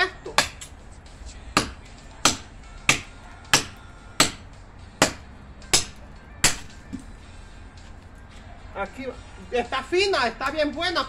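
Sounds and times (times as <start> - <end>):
machete chopping wood: 0.2 - 0.8, 1.5 - 7.1.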